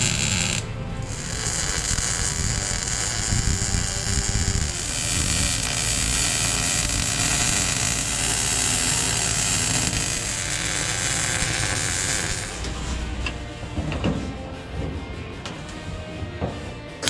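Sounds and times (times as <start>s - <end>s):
welding arc crackling: 0.0s - 12.9s.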